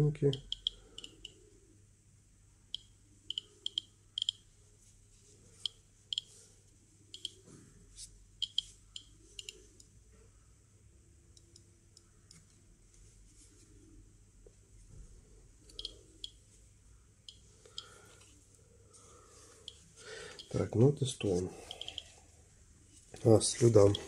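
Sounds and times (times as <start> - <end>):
geiger counter clicks: 0.3 - 1.4, 2.7 - 4.4, 7.1 - 7.4, 8.4 - 9.9, 15.7 - 16.4, 20.4 - 20.6, 21.7 - 22.1, 23.8 - 24.0.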